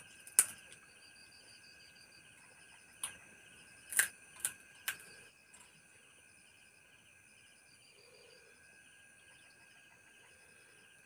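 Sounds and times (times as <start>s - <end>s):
faint insects chirping: 4.7s - 11.0s.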